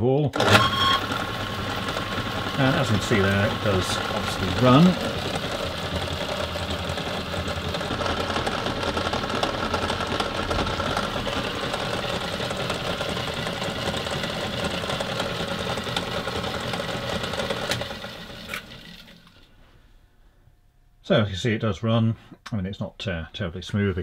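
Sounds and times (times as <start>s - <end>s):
bench drill motor running: 0.4s - 19.5s.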